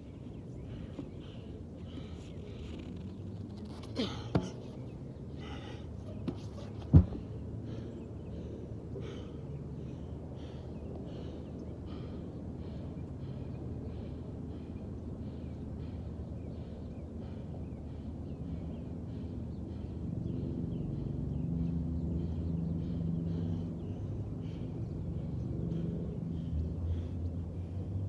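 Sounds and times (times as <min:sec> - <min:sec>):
low traffic rumble: 0:00.0 - 0:28.0
vehicle engine: 0:15.5 - 0:28.0.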